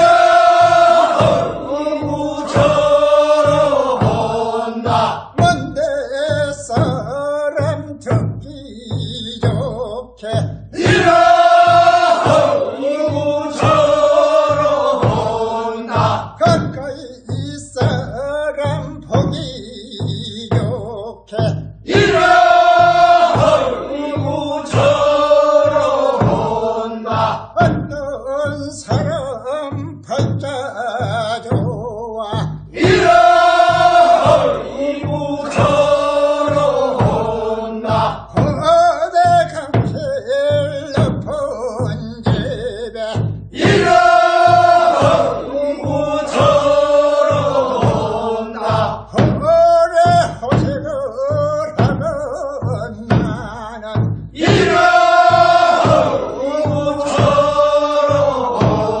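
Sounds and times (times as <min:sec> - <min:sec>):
voices chanting long notes: 0:00.0 - 0:05.3, 0:10.8 - 0:16.3, 0:21.9 - 0:27.5, 0:32.7 - 0:38.3, 0:43.6 - 0:49.1, 0:54.4 - 0:59.0.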